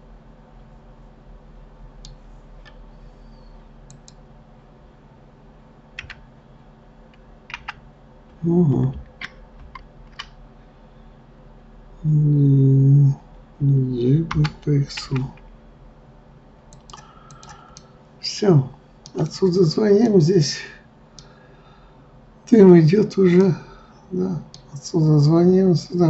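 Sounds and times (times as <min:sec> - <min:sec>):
low electrical hum: 0:00.0 - 0:26.0
mouse and keyboard clicks: 0:06.0 - 0:06.2.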